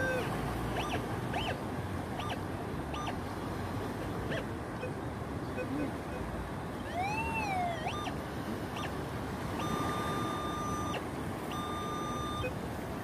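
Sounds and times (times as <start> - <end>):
metal detector steady beeps: 0.0 - 1.6, 2.2 - 3.2, 6.9 - 12.6
metal detector wavering tone: 0.0 - 1.6, 2.2 - 3.2, 6.9 - 12.6
metal detector chirps: 0.8 - 1.6, 2.2 - 3.2, 6.9 - 8.2, 8.8 - 9.0, 9.6 - 12.6.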